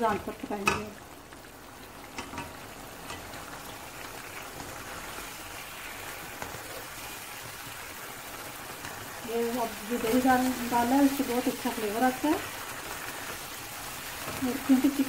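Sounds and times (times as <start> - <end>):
gravy sizzling in a pan: 0.0 - 15.0
spatula tapping a pan: 0.6 - 1.0, 2.1 - 3.4.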